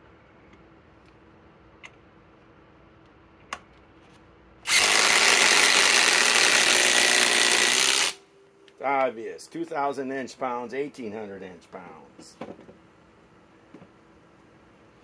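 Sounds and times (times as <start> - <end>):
impact drivers driving screws: 4.7 - 8.2.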